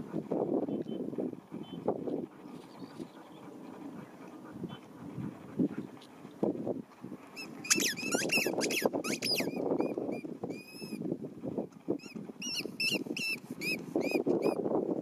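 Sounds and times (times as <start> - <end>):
squeaky dog ball squeaking: 7.4 - 11.0, 12.0 - 14.6.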